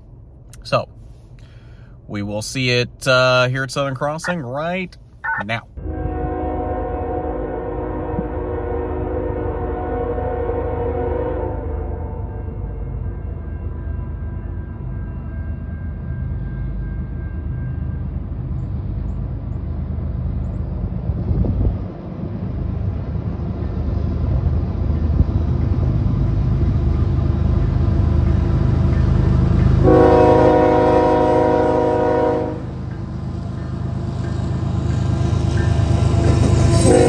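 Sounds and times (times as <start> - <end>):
diesel locomotive rumble: 0.0 - 37.0
train horn blast: 5.8 - 12.9, 29.8 - 32.8, 36.2 - 37.0.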